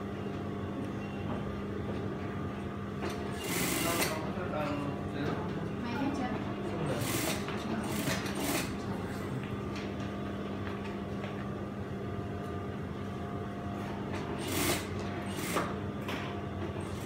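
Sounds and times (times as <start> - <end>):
sewing machine motors humming: 3.1 - 4.3, 6.8 - 9.1, 14.2 - 15.8, 16.7 - 17.0.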